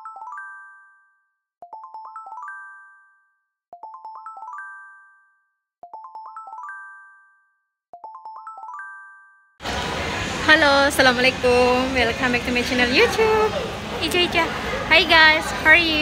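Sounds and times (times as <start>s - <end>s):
bell-like chime jingle: 0.0s - 9.6s.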